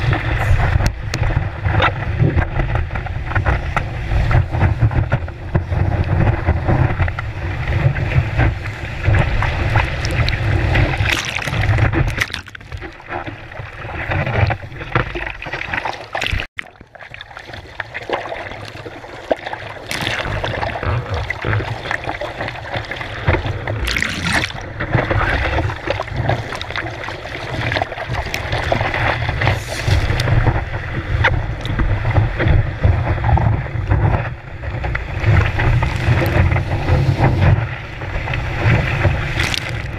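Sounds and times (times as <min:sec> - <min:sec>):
wind buffeting microphone: 0:00.0 - 0:12.2, 0:27.8 - 0:39.9.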